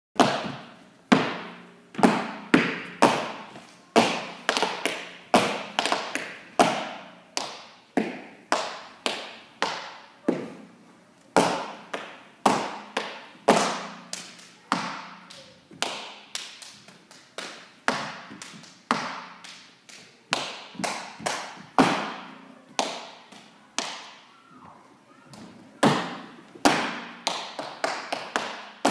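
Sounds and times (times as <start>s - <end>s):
dance stomps on hard floor: 0.2s - 3.4s.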